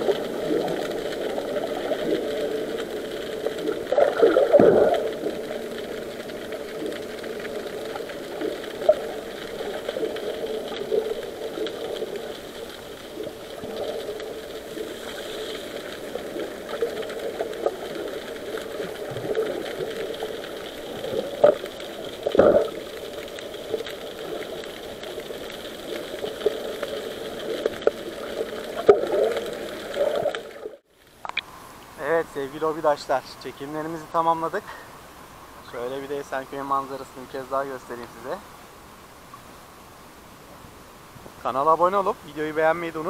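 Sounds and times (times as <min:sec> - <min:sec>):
muffled underwater hum: 0:00.0 - 0:41.4.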